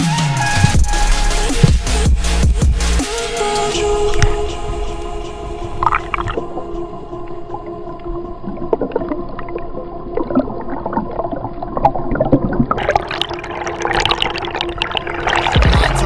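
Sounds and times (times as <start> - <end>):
water splashing and bubbling: 0.4 - 2.8, 3.8 - 16.0
underwater hum: 0.4 - 16.0
crackling clicks: 4.0 - 5.1.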